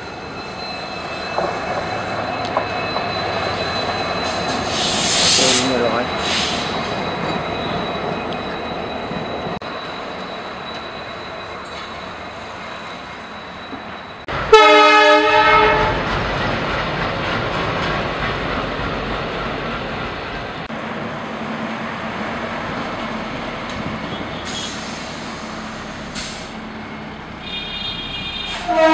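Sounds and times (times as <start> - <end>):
train rushing past: 0.0 - 28.9
train horn blast: 14.5 - 16.0, 27.4 - 28.9.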